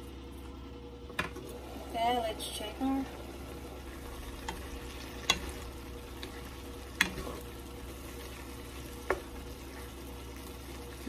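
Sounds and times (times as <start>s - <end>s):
food sizzling in a frying pan: 1.4s - 11.0s
spatula clacking against pan: 7.0s - 7.3s.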